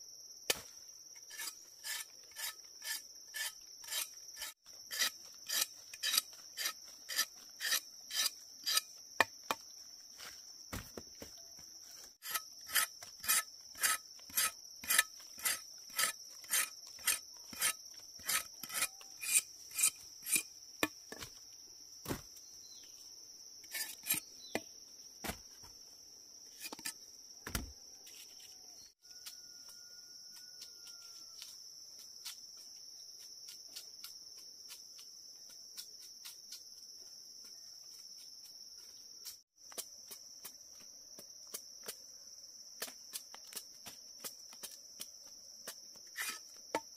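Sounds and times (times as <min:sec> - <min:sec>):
insects droning: 0:00.0 - 0:46.9
rhythmic scraping or chopping: 0:12.1 - 0:21.3.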